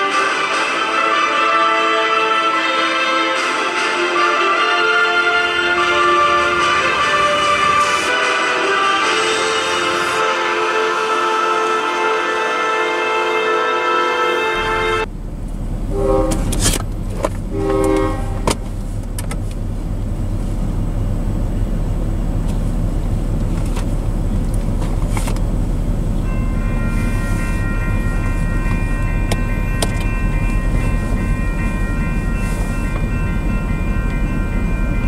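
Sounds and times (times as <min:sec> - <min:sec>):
distant train horn blasts: 0:00.0 - 0:15.1, 0:15.9 - 0:16.7, 0:17.5 - 0:18.7, 0:26.2 - 0:35.0
locomotive air horn: 0:00.0 - 0:15.1, 0:15.9 - 0:16.8, 0:17.5 - 0:18.9, 0:26.2 - 0:35.0
railroad crossing bell ringing: 0:00.0 - 0:15.1, 0:26.1 - 0:35.0
steady low rumble: 0:14.6 - 0:35.0.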